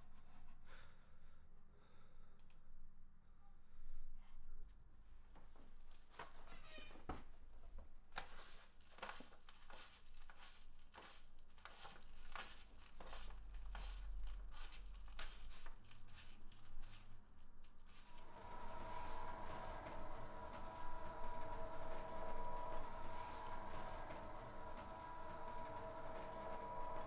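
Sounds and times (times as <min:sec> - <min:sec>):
low room hum: 0:00.0 - 0:27.0
paper rustling and crinkling: 0:08.1 - 0:27.0.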